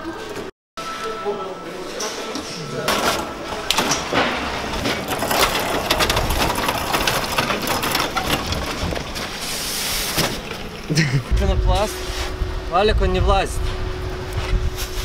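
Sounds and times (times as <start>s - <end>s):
trolley rattling over pavement: 2.9s - 11.0s.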